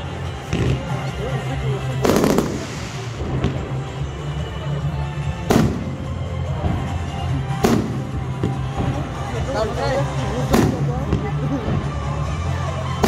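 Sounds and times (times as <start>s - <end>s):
background music: 0.0s - 13.0s
fireworks bursting: 1.8s - 4.4s, 5.3s - 13.0s.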